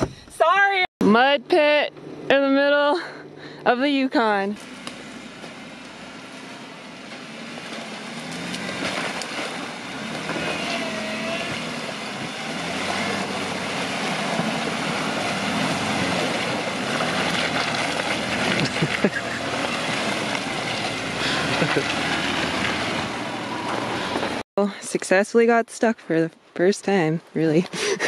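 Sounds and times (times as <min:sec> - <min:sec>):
car engine at low speed: 0:00.0 - 0:24.4
tyres splashing through mud: 0:04.6 - 0:24.4.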